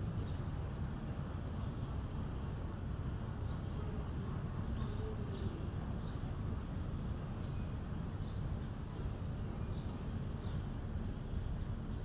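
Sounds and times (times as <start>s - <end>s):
low outdoor rumble: 0.0s - 12.0s
faint bird chirps: 3.4s - 6.3s.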